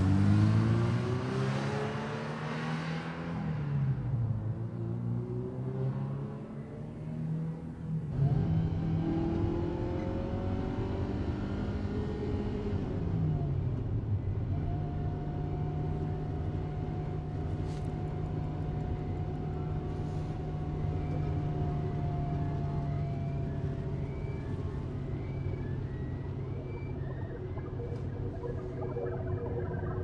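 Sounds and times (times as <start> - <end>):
car engine driving: 15.9 - 30.0.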